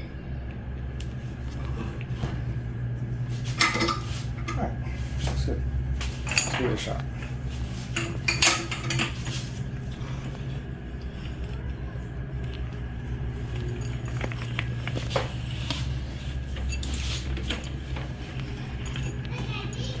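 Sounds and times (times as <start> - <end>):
steady low hum: 0.0 - 20.0
metal clinks and clicks: 13.4 - 15.1, 16.5 - 20.0.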